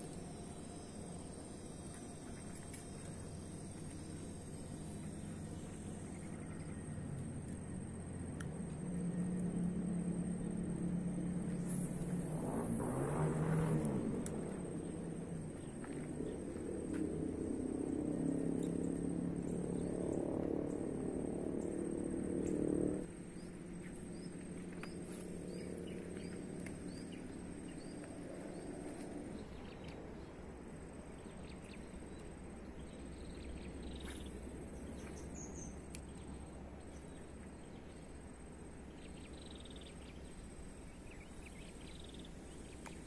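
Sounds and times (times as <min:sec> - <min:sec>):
high-pitched insect drone: 0:00.0 - 0:07.1
low background rumble: 0:00.0 - 0:43.0.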